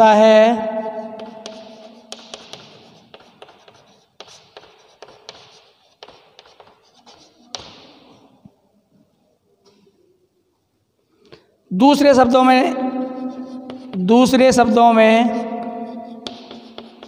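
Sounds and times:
chalk tapping and scratching: 0.2 - 8.5, 12.2 - 17.0.

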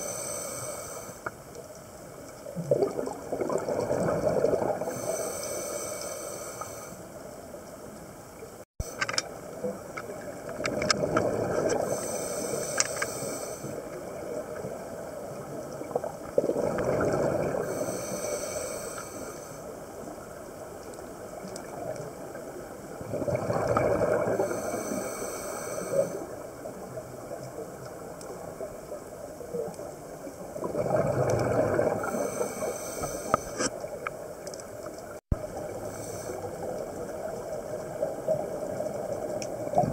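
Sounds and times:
regulator hiss: 0.0 - 1.5, 4.9 - 7.3, 11.9 - 13.9, 17.7 - 19.8, 24.4 - 26.4
exhaled bubbles rushing: 2.6 - 4.9, 10.8 - 11.8, 15.8 - 17.7, 23.0 - 24.4, 30.6 - 32.2.

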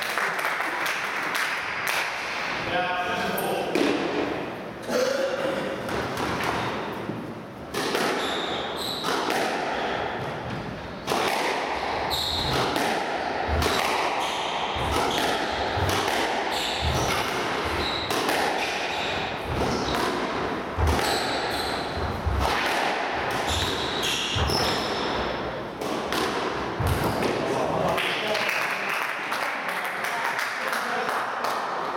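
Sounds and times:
ball hitting walls: 3.7 - 4.4, 5.8 - 27.4
squash ball hit by racquets: 3.7 - 4.4, 5.8 - 27.5
shoes squeaking on wooden floor: 23.4 - 25.1.

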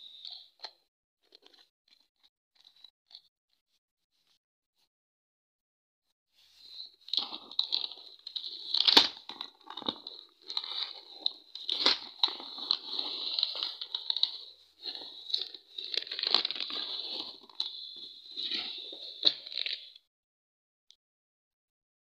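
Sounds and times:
plastic wrapping crinkling: 7.1 - 19.9.

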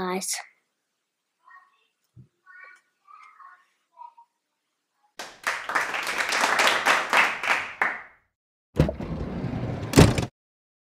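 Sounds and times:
hand clapping: 5.2 - 8.2.

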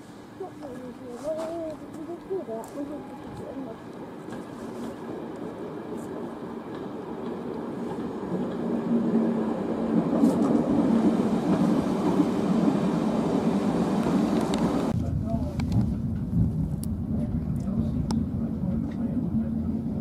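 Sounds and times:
train wheels rolling on rails: 0.0 - 20.0.

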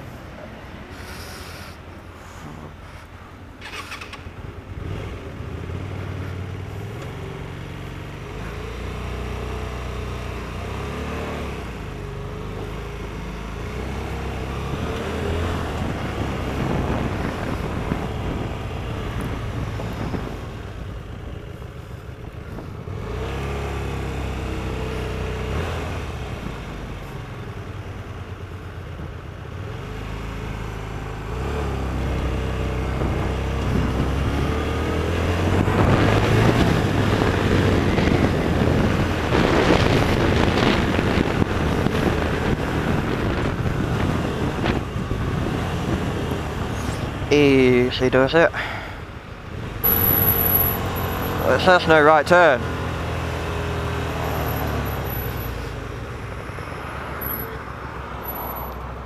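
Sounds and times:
motorcycle engine revving: 22.5 - 26.8, 29.6 - 47.9, 49.6 - 55.9.

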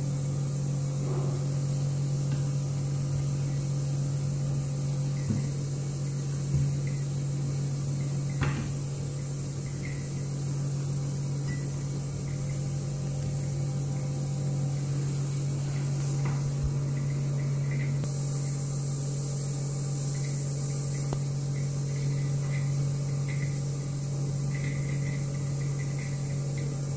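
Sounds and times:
low hum of lab equipment: 0.0 - 26.9
light knocks of electrode holder: 8.4 - 8.8.

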